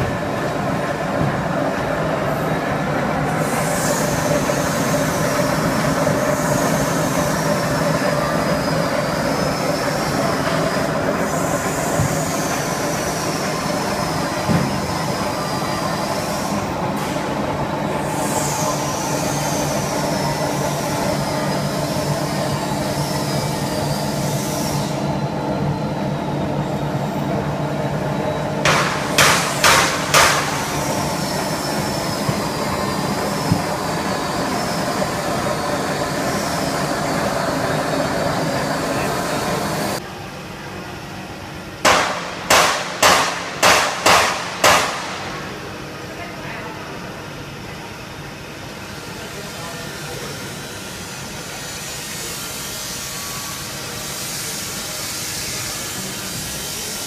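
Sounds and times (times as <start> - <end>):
sharp knocks: 28.7 - 30.5, 41.9 - 45.2
mixer motor hum with whine: 30.5 - 40.0.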